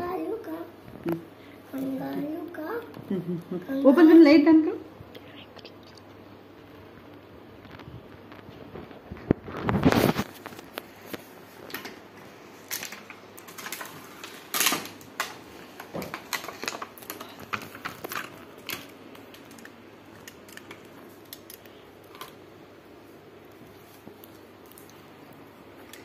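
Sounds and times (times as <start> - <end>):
plastic packaging crinkling: 9.2 - 22.4.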